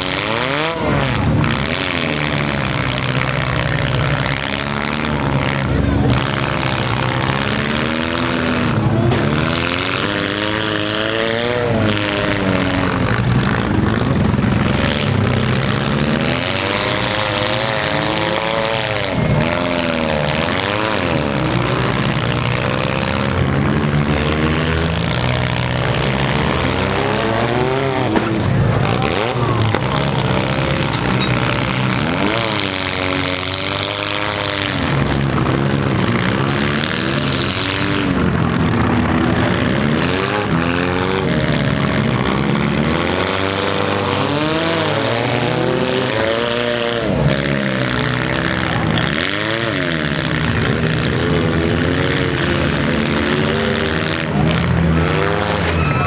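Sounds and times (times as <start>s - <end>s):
car engines revving hard: 0.0s - 56.0s.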